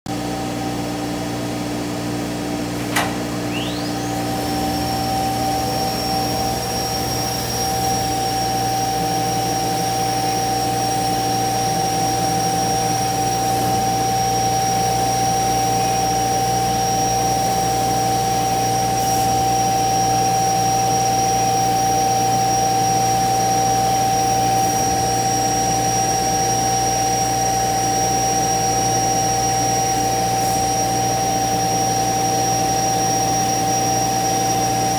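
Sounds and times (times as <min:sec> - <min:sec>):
vacuum blower drone: 0:00.1 - 0:34.9
sharp click: 0:02.8 - 0:03.9
router spindle whining: 0:02.9 - 0:34.9.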